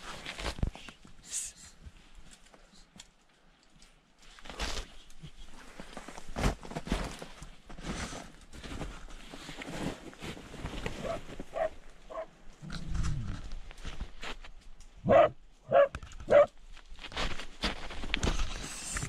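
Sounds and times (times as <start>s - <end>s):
faint rustling: 1.9s - 19.0s
dog barking: 11.0s - 12.3s, 15.0s - 16.5s.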